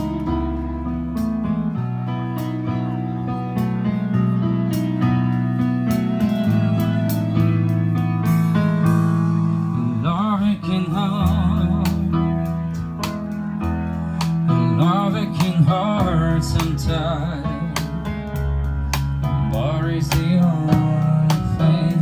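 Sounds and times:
band playing pop ballad: 0:00.0 - 0:22.0.

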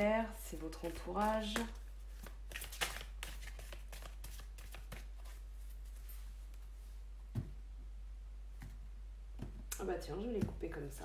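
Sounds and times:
cards being shuffled: 0:00.8 - 0:06.0.

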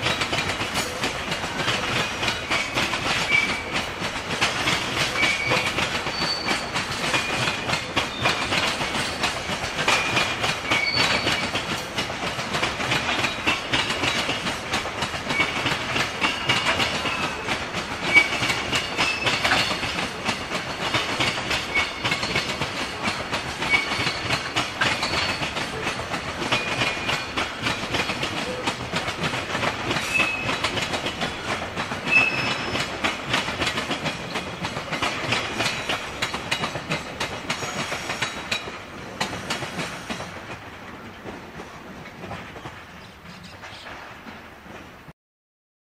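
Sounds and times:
train wheels clattering over rail joints: 0:00.0 - 0:45.1
high squeaks: 0:05.1 - 0:07.4, 0:10.0 - 0:11.5, 0:32.1 - 0:32.9.

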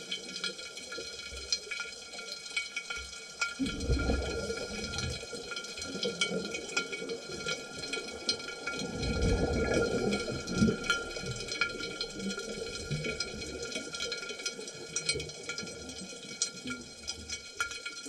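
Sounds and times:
diver bubbles gurgling: 0:03.6 - 0:15.9.

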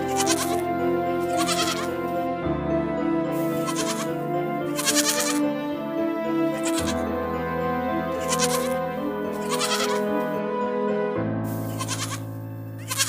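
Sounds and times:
goats bleating: 0:00.0 - 0:00.6, 0:01.2 - 0:02.0, 0:03.4 - 0:05.4, 0:06.6 - 0:07.0, 0:08.1 - 0:10.1, 0:11.7 - 0:13.0
background music with held chords: 0:00.0 - 0:13.0.

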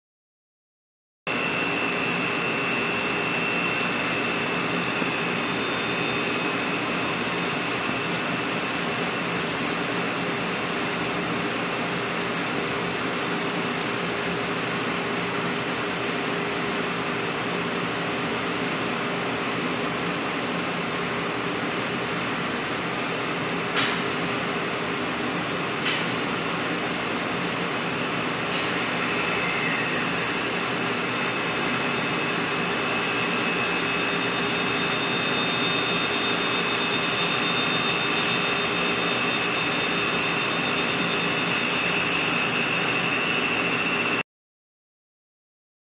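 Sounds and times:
faint high whine: 0:01.3 - 0:09.8, 0:28.1 - 0:44.2.

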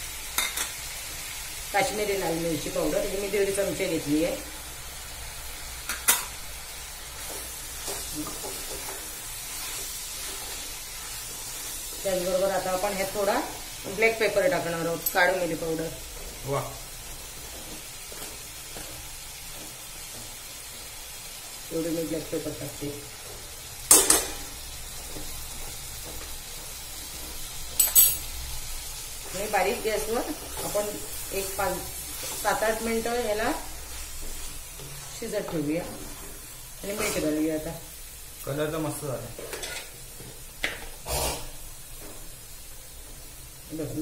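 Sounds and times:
food sizzling in a pan: 0:00.0 - 0:44.0
wooden spatula scraping a pan: 0:29.3 - 0:37.4
wooden spatula scraping pan: 0:34.0 - 0:37.4.

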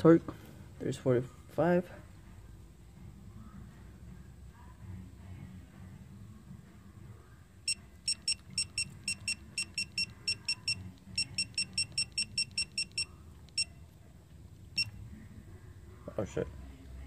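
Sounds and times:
digital torque wrench beeping: 0:07.7 - 0:13.7.

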